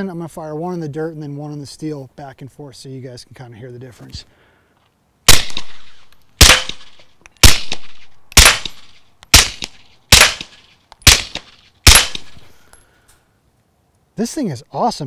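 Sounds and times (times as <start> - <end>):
suppressed pistol shots: 5.3 - 12.5.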